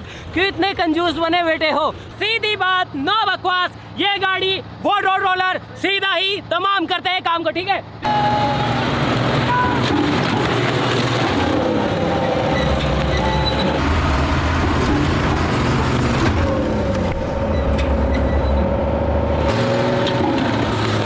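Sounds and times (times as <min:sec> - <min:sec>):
diesel engine running: 0:07.9 - 0:21.0.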